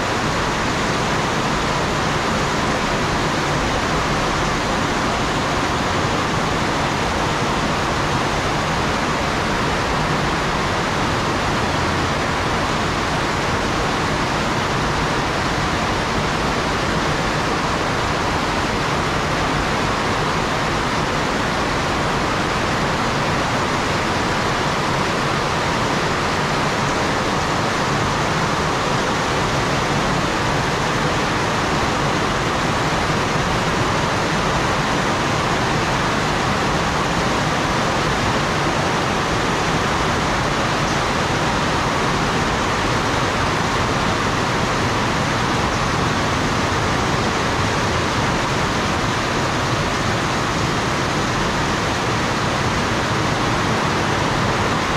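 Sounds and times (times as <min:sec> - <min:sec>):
heavy rain falling: 0:00.0 - 0:54.9.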